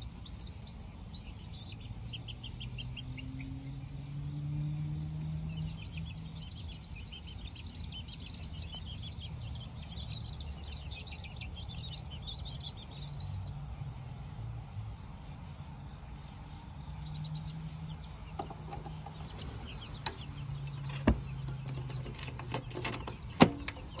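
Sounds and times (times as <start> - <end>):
metal latch clicks: 20.0 - 24.0.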